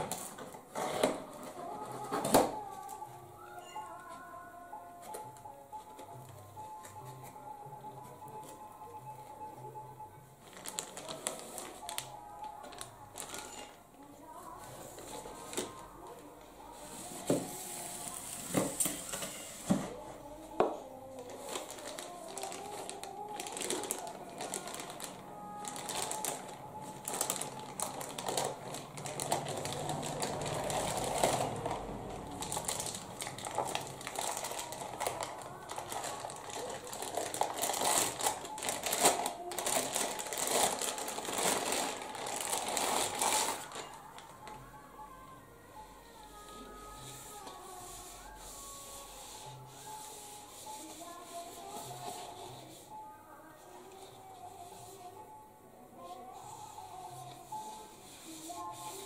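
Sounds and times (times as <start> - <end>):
plastic bag crinkling: 10.4 - 13.8, 21.2 - 44.3.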